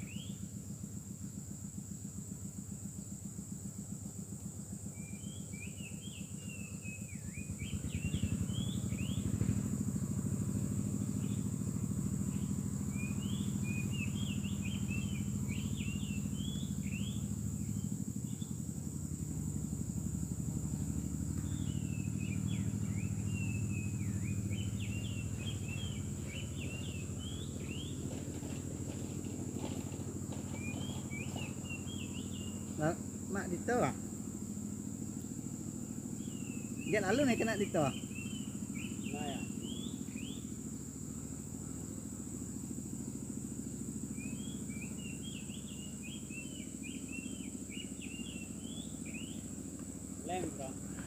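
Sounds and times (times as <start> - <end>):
songbird whistling: 0.0 - 0.4, 4.9 - 9.3, 12.4 - 18.5, 21.4 - 28.1, 30.4 - 32.8, 36.2 - 40.6, 44.1 - 49.6
low throbbing drone: 0.0 - 51.0.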